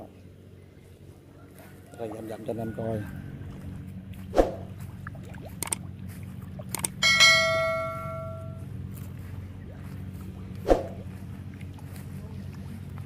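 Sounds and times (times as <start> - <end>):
steady low hum: 0.0 - 13.0
short clicks: 5.6 - 5.8, 6.7 - 7.0
bell chime: 7.0 - 8.6.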